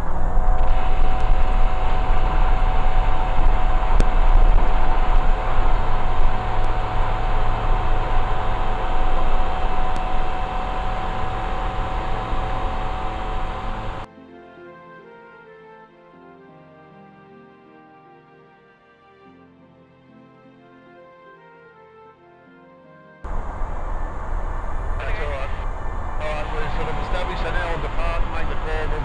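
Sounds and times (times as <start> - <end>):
light aircraft engine drone: 0.0 - 14.1, 23.2 - 29.0
soft music: 0.0 - 29.0.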